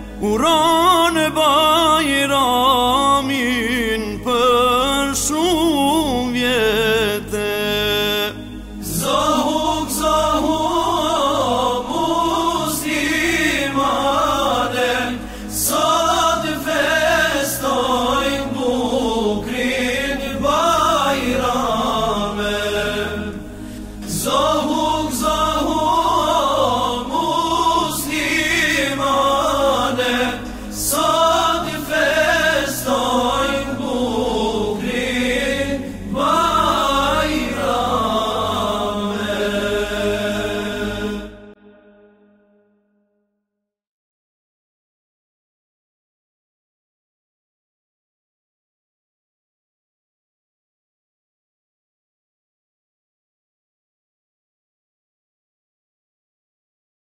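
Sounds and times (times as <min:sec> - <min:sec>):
group of voices chanting: 0:24.0 - 0:42.1.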